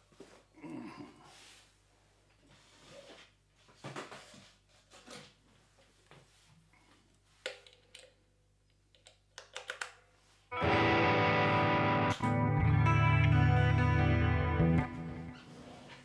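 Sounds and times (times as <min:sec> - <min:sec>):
loud electric guitar: 0:10.5 - 0:15.4.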